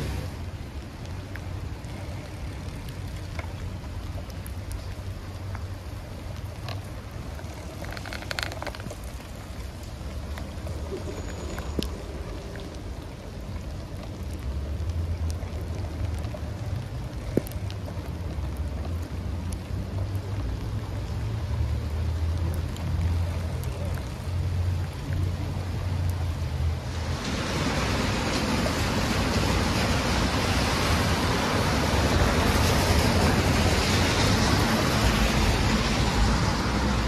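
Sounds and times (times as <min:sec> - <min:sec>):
rain on a wet street: 0:00.0 - 0:37.0.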